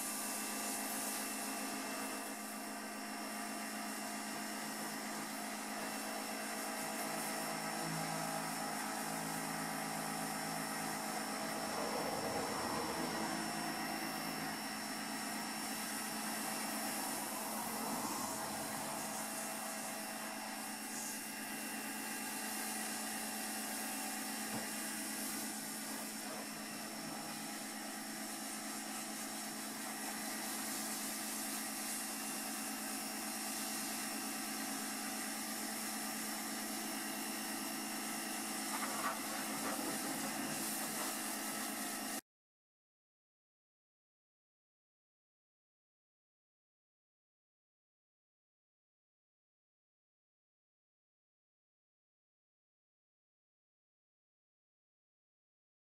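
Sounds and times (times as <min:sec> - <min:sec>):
pressure washer motor and pump drone: 0:00.0 - 0:42.2
water jet hissing: 0:00.0 - 0:42.2.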